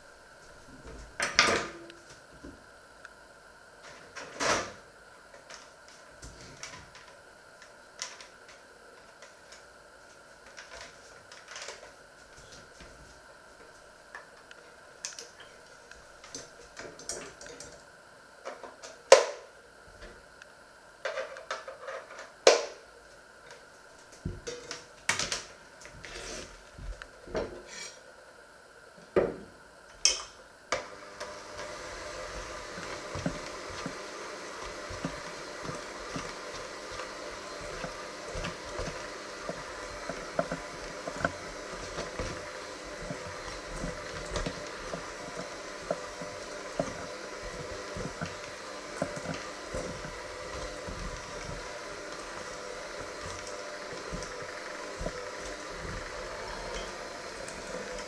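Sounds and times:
electric hand mixer running: 30.5s - 58.0s.

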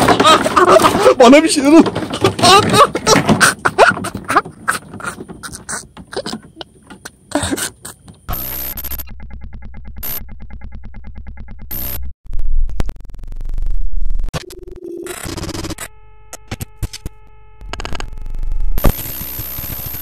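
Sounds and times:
static bursts: 8.3s - 9.1s, 11.7s - 20.0s
stuttering synth pulses: 8.3s - 16.0s.

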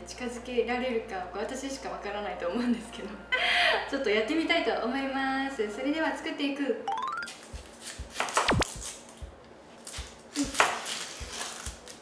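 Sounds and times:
knife slicing onion: 7.4s - 11.9s.

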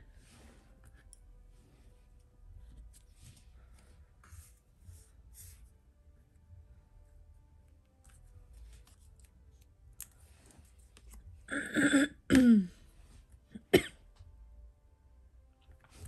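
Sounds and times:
woman clearing her throat: 11.5s - 12.8s
woman coughing: 11.5s - 12.8s, 13.6s - 14.0s.

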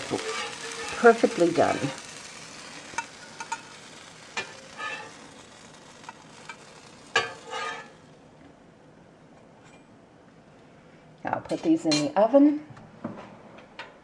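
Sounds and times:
metal spatula scraping: 0.0s - 8.1s
pancakes sizzling on griddle: 0.0s - 8.3s.

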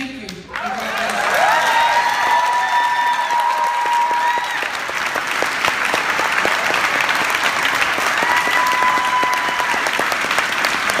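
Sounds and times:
audience applauding: 0.5s - 11.0s
person whooping in crowd: 1.3s - 4.8s, 8.0s - 10.1s.

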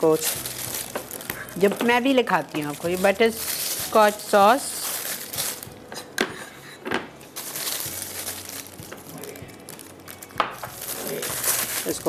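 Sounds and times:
plastic piping bag crinkling: 0.0s - 6.2s, 7.3s - 12.0s.

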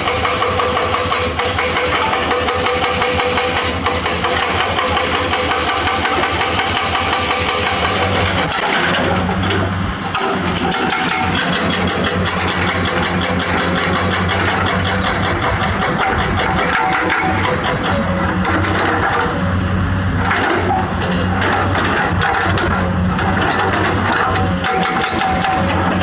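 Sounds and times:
excavator diesel engine: 0.0s - 26.0s
hydraulic rock breaker pounding: 0.0s - 26.0s.

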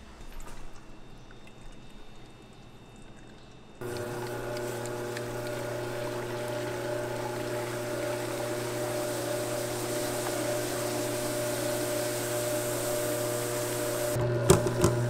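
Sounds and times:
liquid nitrogen boiling hiss: 3.8s - 15.0s
stand mixer motor humming: 3.8s - 15.0s.

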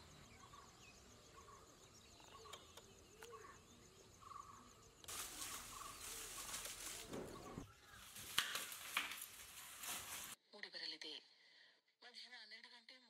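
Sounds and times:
faint bird calls: 1.3s - 8.4s
dry palm fronds rustling: 5.1s - 10.4s
frond snapping: 5.1s - 10.4s.

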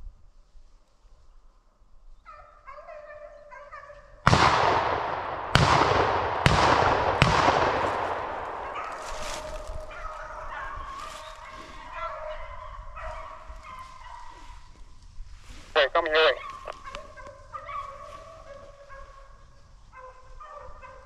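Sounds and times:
hounds baying: 2.3s - 4.1s, 8.2s - 14.8s, 15.8s - 21.0s
gunshots echoing: 4.3s - 9.9s.

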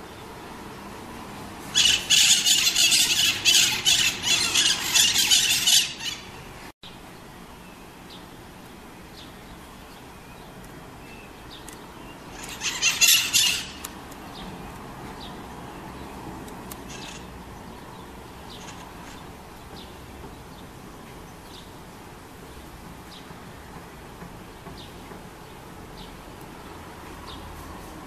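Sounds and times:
parakeets screeching: 1.7s - 6.5s, 12.3s - 13.9s, 16.9s - 17.4s.

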